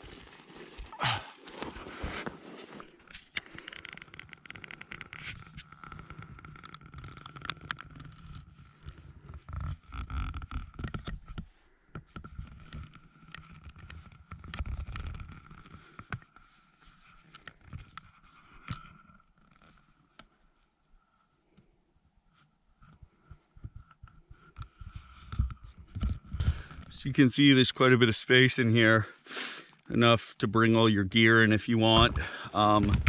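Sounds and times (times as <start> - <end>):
crawling on packed snow: 0.0 - 2.9
camera rubbing against clothing: 0.0 - 11.5.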